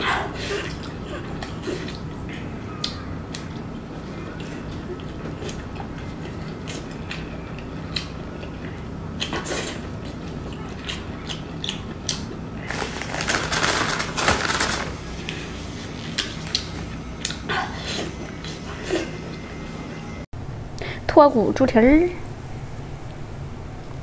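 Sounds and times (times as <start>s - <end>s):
person chewing meat: 0.6s - 13.3s, 15.2s - 17.5s.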